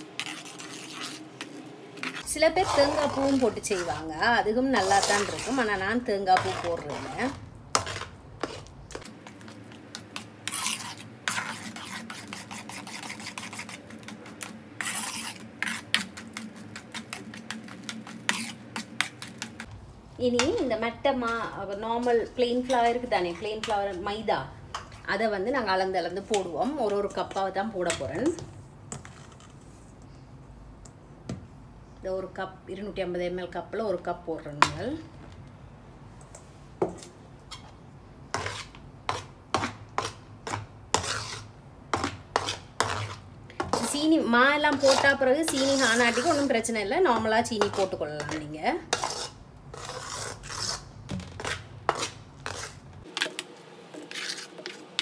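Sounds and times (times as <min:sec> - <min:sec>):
spoon scraping a pot: 0:00.0 - 0:19.7, 0:37.0 - 0:52.8, 0:54.0 - 0:55.0.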